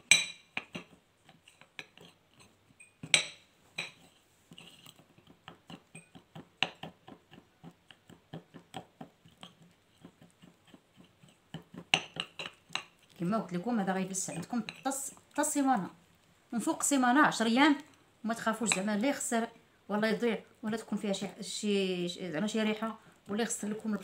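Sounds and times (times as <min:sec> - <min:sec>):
spoon scraping ceramic bowl: 0:00.0 - 0:13.2, 0:14.0 - 0:15.3.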